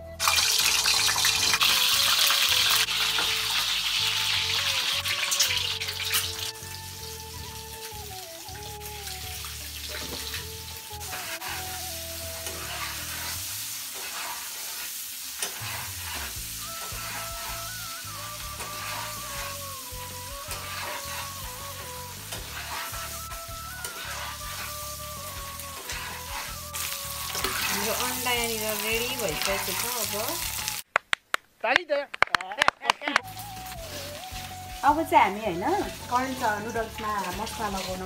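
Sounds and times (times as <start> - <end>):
eggs sizzling in hot oil: 0.0 - 30.9, 33.2 - 38.0
spatula clicking and scraping: 9.8 - 30.6, 35.8 - 38.0.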